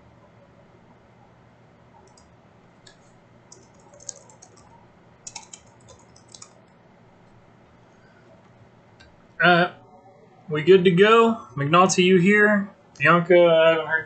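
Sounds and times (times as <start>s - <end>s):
typing on computer keyboard: 2.0s - 2.3s, 3.5s - 6.7s.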